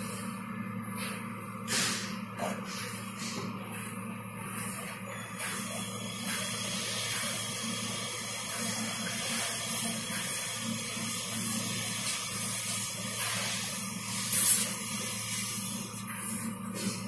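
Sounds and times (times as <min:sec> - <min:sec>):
steady hiss: 0:12.1 - 0:16.0.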